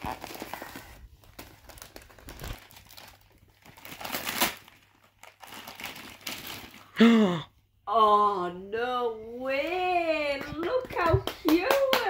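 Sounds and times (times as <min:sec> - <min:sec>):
wrapping paper crinkling: 0:00.0 - 0:07.0.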